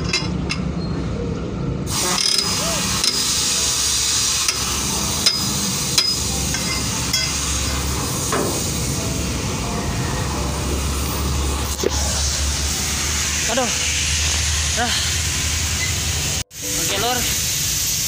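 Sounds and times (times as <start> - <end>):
steel bar clinking on wheel rim: 4.5 - 7.4.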